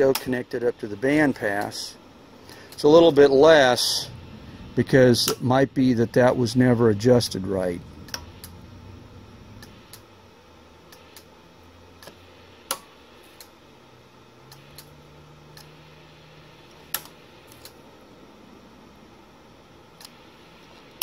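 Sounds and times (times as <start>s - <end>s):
faint low hum: 0.0s - 21.0s
switches clicking: 8.0s - 8.6s.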